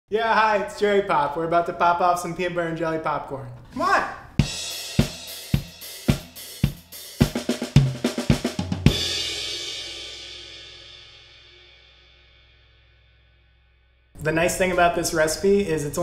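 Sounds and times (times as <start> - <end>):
snare and bass drum hits: 4.4 - 9.4
cymbal crash: 8.8 - 13.8.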